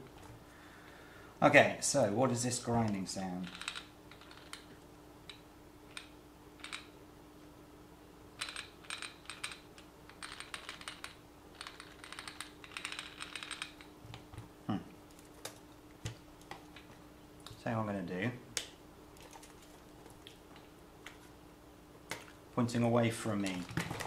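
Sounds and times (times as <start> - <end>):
faint steady hum: 0.0 - 24.0
plastic parts clicking and rattling: 3.4 - 4.7, 8.4 - 14.3.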